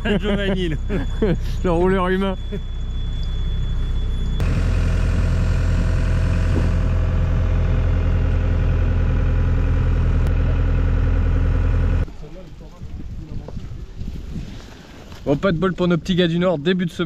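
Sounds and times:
excavator diesel engine running: 0.0 - 12.1
low hum: 0.0 - 12.1.

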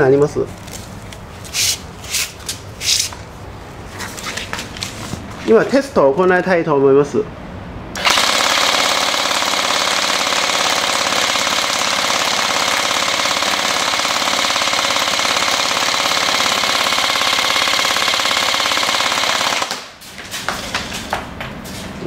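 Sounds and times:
airsoft gun full-auto burst: 8.0 - 19.9.

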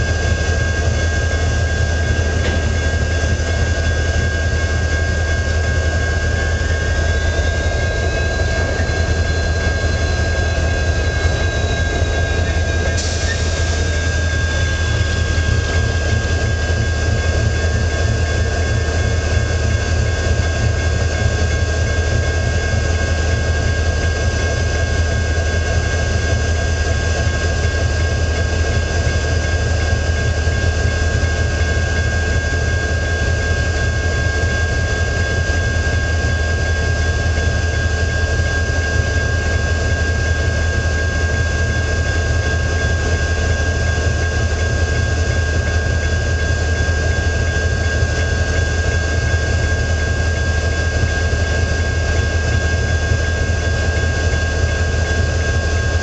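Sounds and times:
high-pitched whine: 0.0 - 56.0
locomotive idling drone: 0.0 - 56.0.

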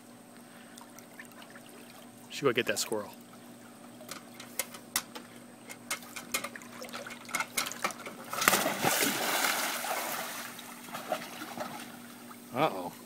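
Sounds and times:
water churning and slopping: 0.7 - 2.3, 6.3 - 12.5
dog splashing into pool: 7.9 - 12.2.

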